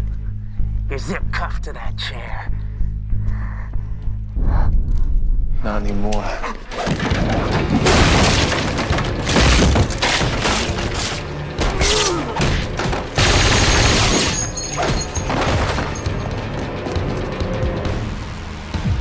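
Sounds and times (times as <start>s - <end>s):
tense score music: 0.0s - 19.0s
fight hits and crashes: 6.7s - 16.3s.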